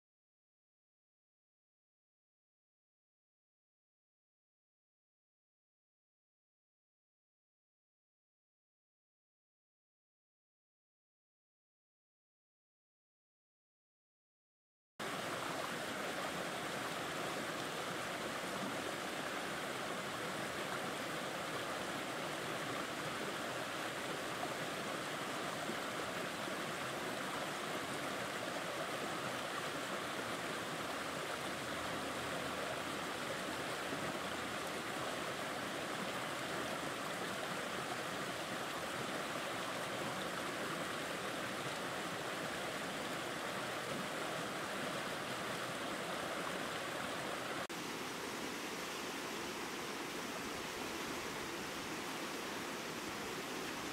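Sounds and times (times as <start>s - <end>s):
stream splashing over boulders: 15.0s - 53.9s.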